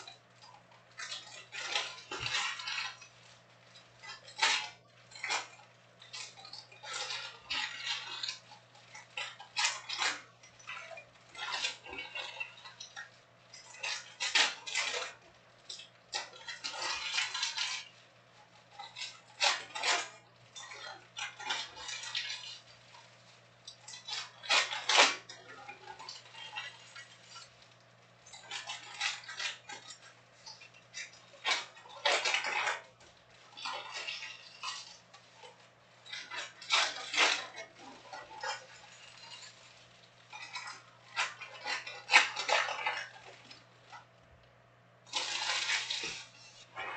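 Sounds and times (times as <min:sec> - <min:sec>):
card packs rustling and crinkling: 0:45.1 - 0:46.9.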